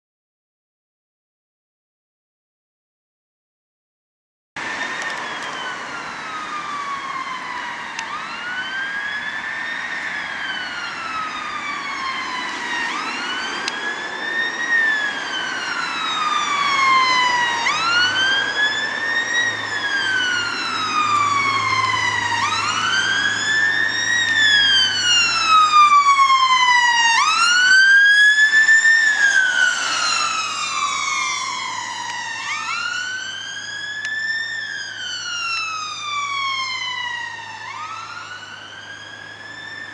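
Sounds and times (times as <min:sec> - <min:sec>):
ambulance siren wailing: 0:04.6 - 0:39.9.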